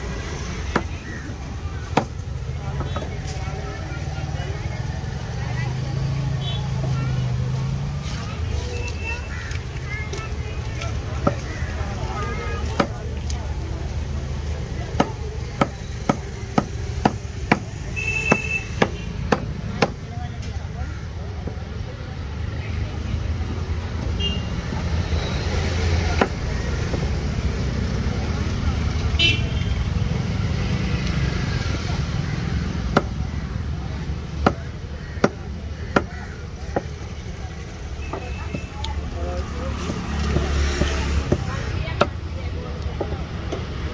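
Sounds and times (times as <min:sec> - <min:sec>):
low road traffic rumble: 0:00.0 - 0:43.9
cleaver chopping on wooden block: 0:14.9 - 0:20.0, 0:32.8 - 0:33.2, 0:34.1 - 0:37.0, 0:39.7 - 0:42.2.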